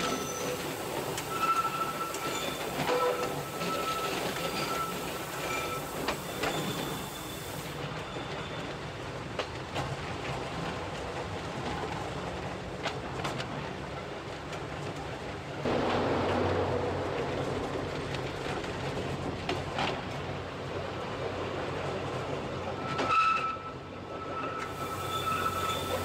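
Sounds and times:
train running hum: 0.0s - 26.0s
clicks from wheels and track: 8.3s - 20.4s.

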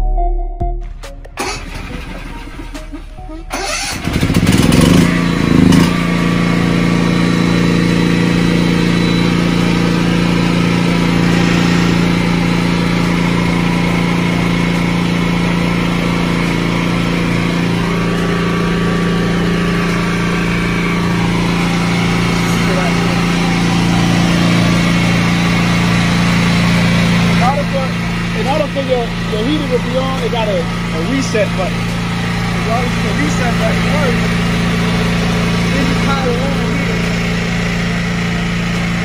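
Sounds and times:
electric motors running drone: 1.4s - 39.0s.

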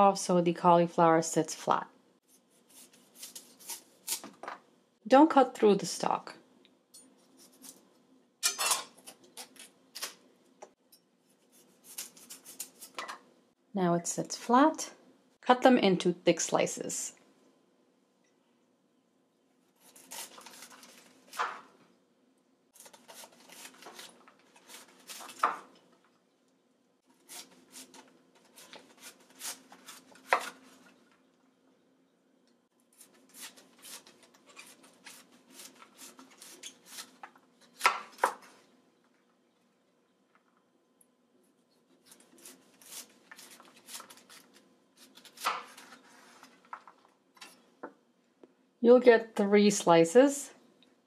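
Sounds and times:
knife sawing through cauliflower: 27.2s - 30.6s.

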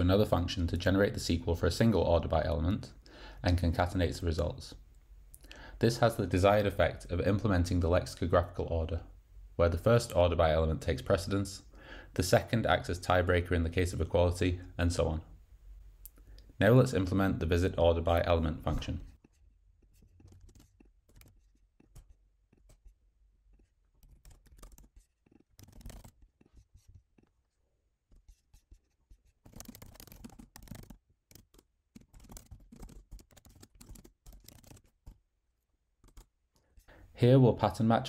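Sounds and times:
faint keyboard typing: 18.7s - 27.3s, 28.1s - 35.2s, 36.0s - 36.9s.

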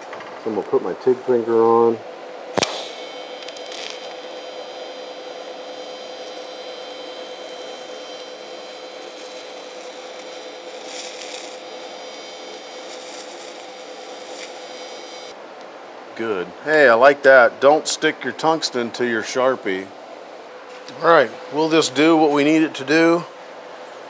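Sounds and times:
faint steady hum: 0.0s - 24.0s
welding arc hissing: 2.5s - 15.3s.

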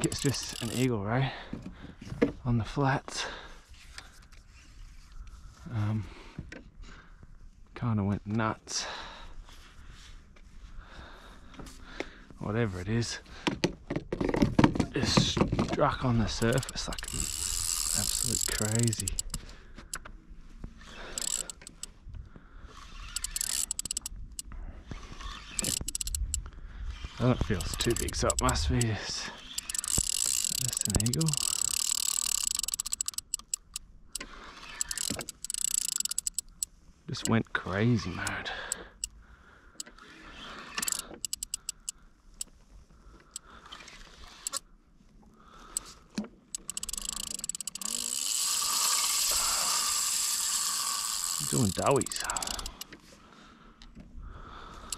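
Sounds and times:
fishing reel whirring and clicking: 0.0s - 0.9s, 16.3s - 20.0s, 20.8s - 21.9s, 22.7s - 37.4s, 38.2s - 39.1s, 39.8s - 42.0s, 44.2s - 44.6s, 46.5s - 53.0s.

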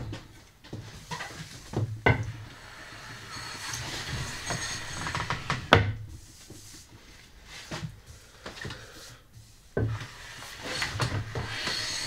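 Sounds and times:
hand brushing wood surface: 2.9s - 12.0s.

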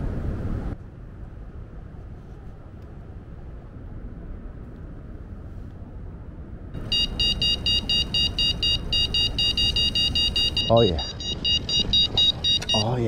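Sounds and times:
low steady rumble: 0.0s - 13.0s
bite alarm beeping: 6.8s - 13.0s.

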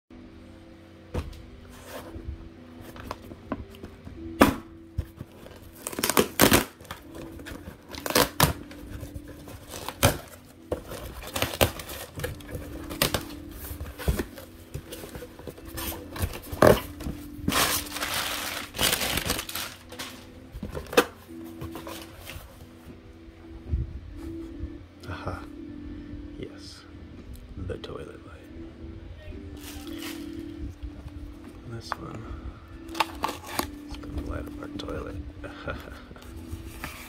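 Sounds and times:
packing tape ripping: 5.4s - 13.4s, 15.6s - 21.2s, 32.9s - 34.0s.

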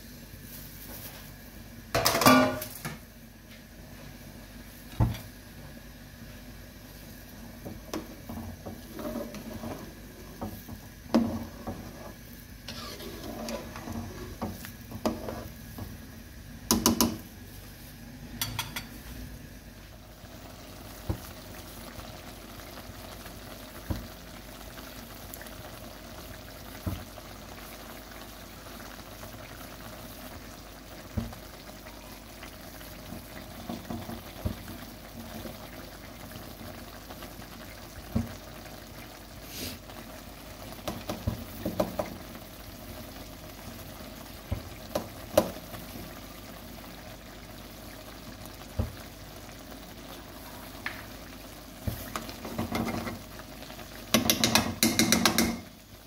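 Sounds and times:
pot boiling and bubbling: 0.0s - 56.0s.

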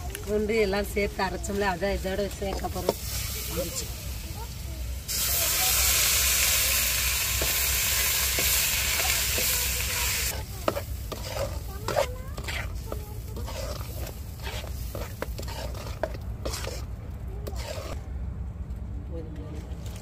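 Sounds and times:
paste sizzling in hot oil: 0.3s - 18.0s
spoon stirring in a pan: 1.2s - 3.6s, 5.4s - 18.0s.

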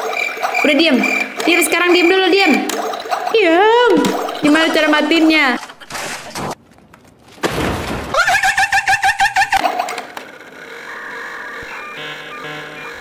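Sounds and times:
wavering pulsing wail: 10.4s - 13.0s.

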